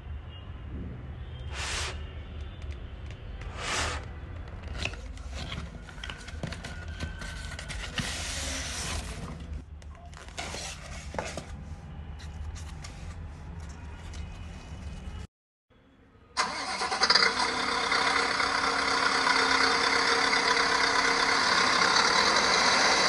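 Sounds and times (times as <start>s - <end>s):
cardboard packaging rustling: 4.4s - 11.6s.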